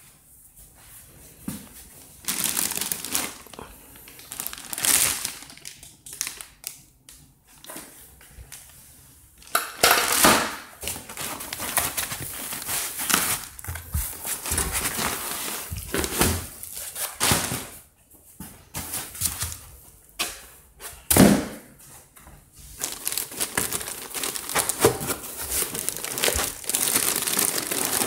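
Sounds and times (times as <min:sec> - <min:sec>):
plastic wrapping crinkling: 0:02.0 - 0:06.9, 0:09.4 - 0:17.8, 0:22.8 - 0:28.0.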